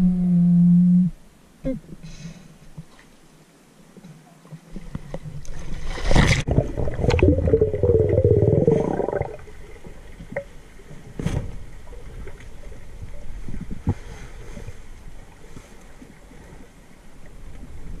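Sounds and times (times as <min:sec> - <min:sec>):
water rushing and splashing: 0:04.6 - 0:10.9
underwater bubbling and gurgling: 0:04.6 - 0:18.0
muffled underwater hush: 0:06.4 - 0:10.5.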